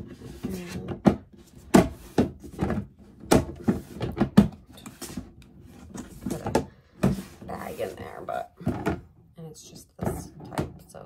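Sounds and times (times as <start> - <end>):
knocks and thumps of a garbage can: 0.4 - 4.7.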